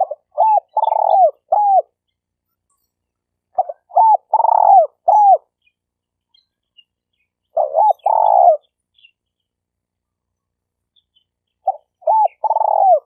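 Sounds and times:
dove cooing: 0:00.0 - 0:02.0, 0:03.5 - 0:05.5, 0:07.5 - 0:08.7, 0:11.6 - 0:13.0.

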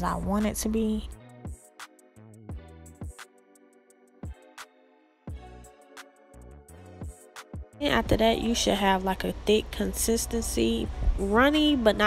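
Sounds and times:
sustained chord music: 0:01.1 - 0:08.8.

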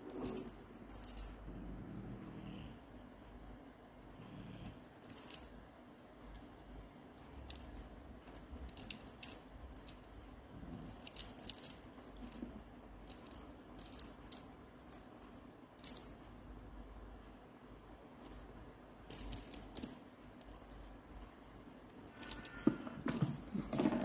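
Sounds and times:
small jingle bell jingling: 0:00.0 - 0:01.5, 0:04.6 - 0:06.6, 0:07.3 - 0:16.3, 0:18.2 - 0:24.0.

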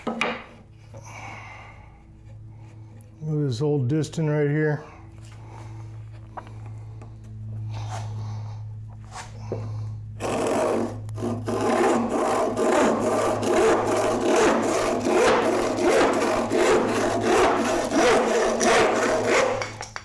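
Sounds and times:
low steady hum: 0:00.0 - 0:20.0
hand saw cutting a board: 0:10.2 - 0:19.9.

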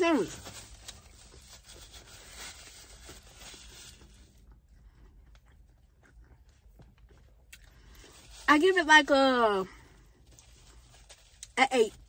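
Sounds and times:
paper wrapper rustling: 0:00.0 - 0:04.3.

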